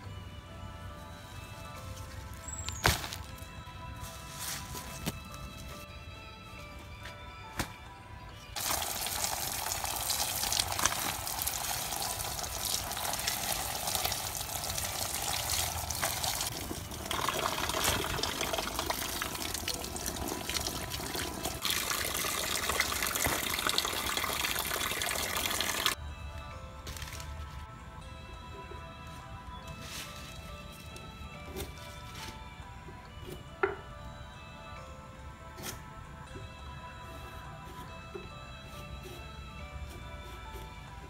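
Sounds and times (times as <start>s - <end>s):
water pouring and splashing: 8.6s - 26.0s.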